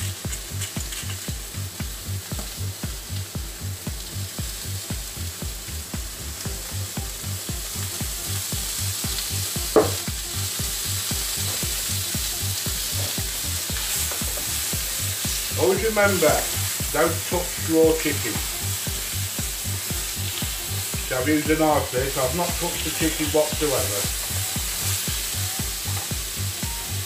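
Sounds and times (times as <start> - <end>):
chicken sizzling in oil: 0.0 - 27.0
sharp knock: 9.8 - 10.0.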